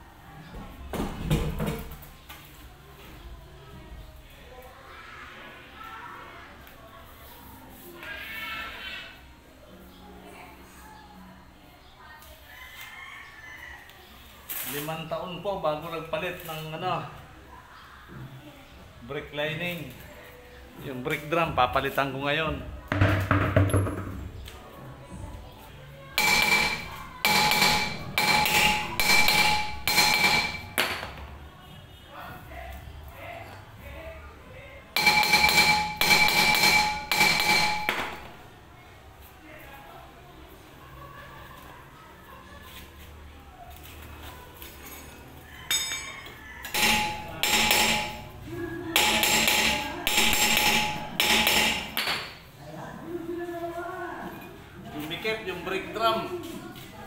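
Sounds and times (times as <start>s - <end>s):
hammer striking metal brake drum: 26.2s - 31.0s, 35.0s - 38.3s, 46.7s - 48.4s, 49.0s - 52.0s.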